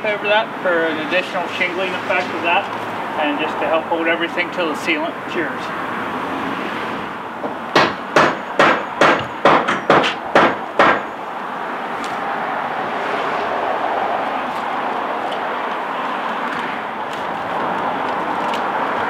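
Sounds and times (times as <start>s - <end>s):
hammer striking: 7.4s - 11.1s.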